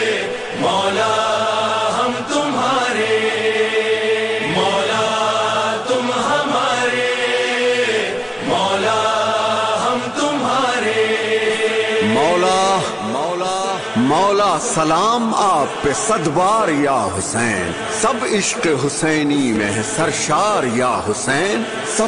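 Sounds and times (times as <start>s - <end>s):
man chanting a lament: 11.9s - 22.0s.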